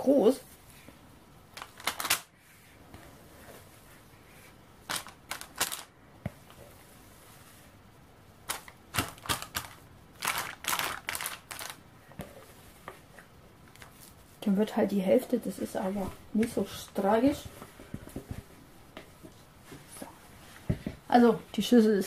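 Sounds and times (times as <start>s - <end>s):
baking paper crinkling: 4.8s - 5.9s, 8.4s - 11.9s.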